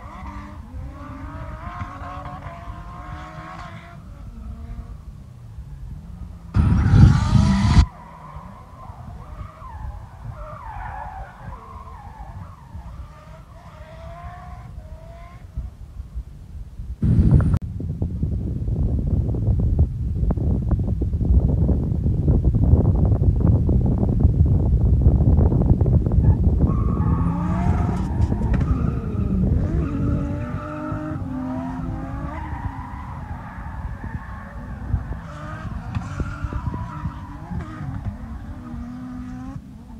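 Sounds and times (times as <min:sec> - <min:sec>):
distant tyres squealing: 0:00.0 - 0:05.0, 0:06.4 - 0:15.4, 0:26.2 - 0:39.6
car engine revving: 0:00.0 - 0:15.7, 0:26.6 - 0:39.9
low rumble: 0:05.6 - 0:07.9
loud rush of noise: 0:06.5 - 0:07.9.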